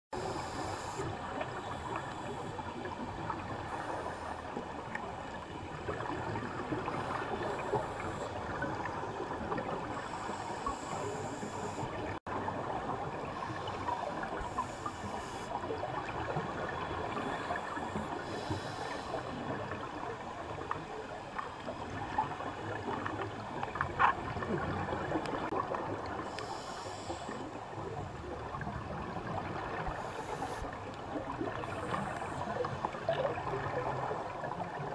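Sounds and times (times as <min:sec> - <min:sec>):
underwater crackling hiss: 0:00.2 - 0:05.0, 0:05.9 - 0:12.2, 0:13.3 - 0:19.5, 0:26.1 - 0:27.6, 0:29.7 - 0:30.8.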